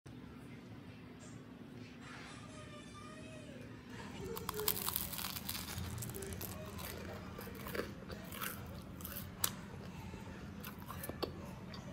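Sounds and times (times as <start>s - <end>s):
sandwich crunching: 4.1s - 11.4s.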